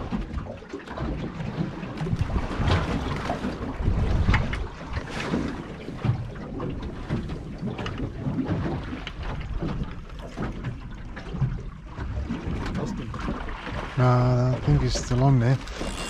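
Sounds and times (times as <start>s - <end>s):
water slapping: 0.0s - 16.0s
gusty wind on microphone: 1.2s - 7.4s.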